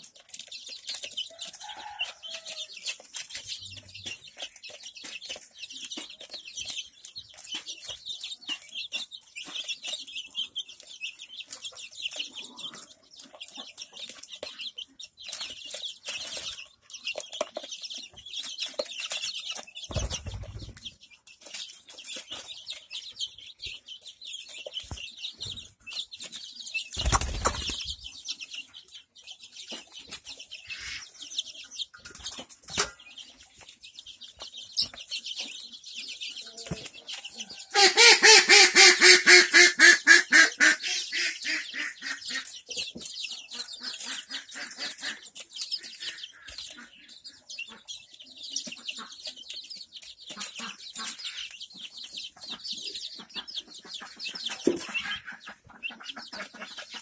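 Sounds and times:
beaks tapping: 0.0s - 28.4s
chicks peeping: 0.0s - 57.0s.

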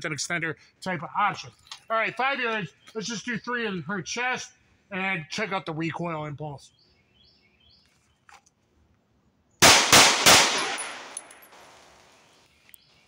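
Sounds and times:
pistol shots: 9.6s - 11.8s.

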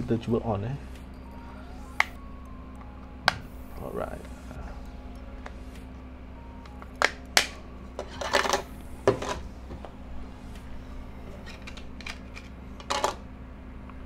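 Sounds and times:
plastic clips snapping: 7.0s - 7.6s.

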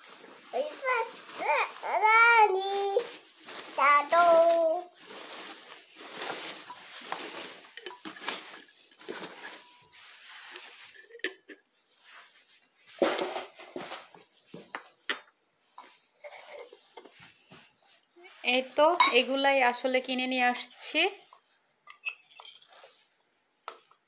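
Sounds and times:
porcelain and glass clinking: 6.3s - 9.8s, 10.5s - 11.7s, 14.7s - 17.2s, 19.0s - 19.3s, 21.8s - 22.8s.

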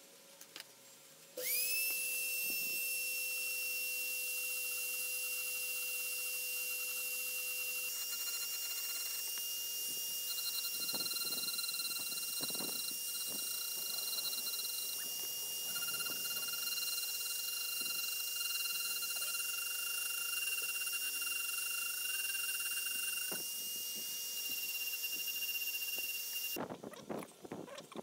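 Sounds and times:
rotary tool grinding steel: 1.4s - 26.6s.

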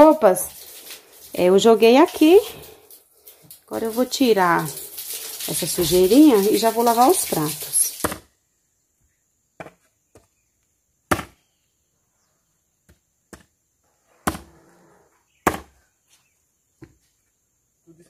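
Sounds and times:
axe chopping log: 8.0s - 8.3s, 11.1s - 11.4s, 14.2s - 14.5s, 15.4s - 15.8s.

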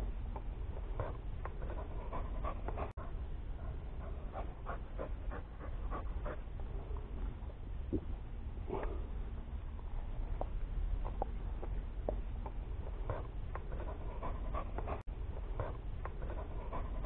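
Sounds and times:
dog panting quickly: 0.8s - 6.5s, 12.9s - 17.0s.

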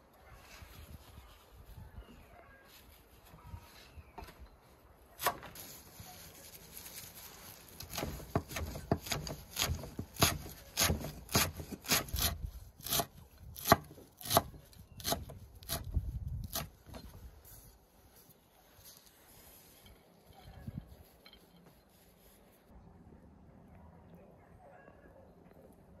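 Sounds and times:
knife chopping on wooden board: 7.9s - 15.8s.

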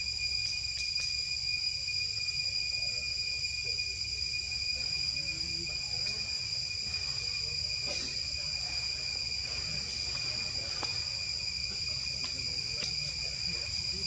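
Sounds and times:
insects droning: 0.0s - 14.0s.

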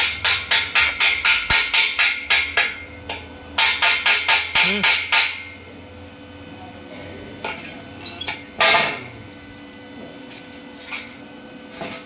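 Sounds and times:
welding arc crackle: 7.6s - 11.8s.

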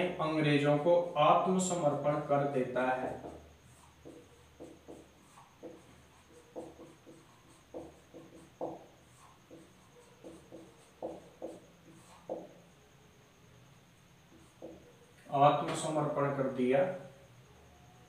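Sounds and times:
marker squeaking on whiteboard: 0.9s - 12.7s, 14.3s - 16.1s.

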